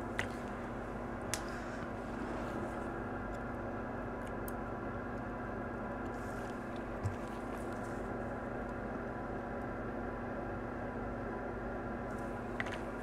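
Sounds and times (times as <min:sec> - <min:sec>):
electrical hum: 0:00.0 - 0:13.0.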